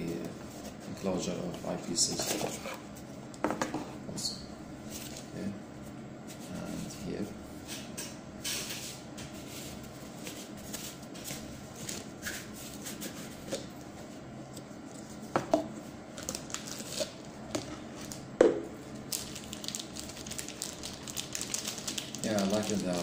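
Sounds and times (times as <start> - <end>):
plastic packaging crinkling: 16.2 - 17.2, 18.9 - 23.0.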